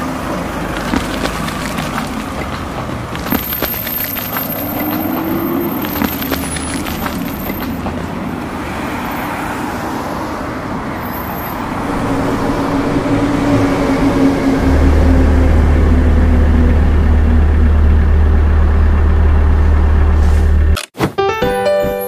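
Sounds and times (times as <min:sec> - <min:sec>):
wheels crunching on gravel: 0:00.4 - 0:08.4.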